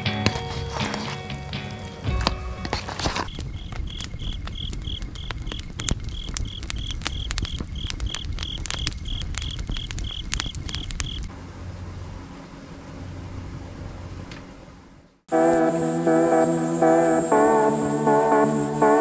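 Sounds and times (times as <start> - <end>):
wood fire crackling and popping: 1.5 - 11.3
cricket chirping: 3.0 - 11.3, 15.4 - 19.0.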